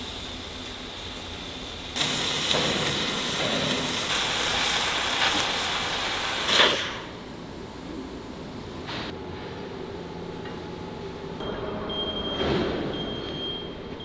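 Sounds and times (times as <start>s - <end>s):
cutting torch hissing: 0.0s - 7.2s
low background hum: 6.9s - 14.0s.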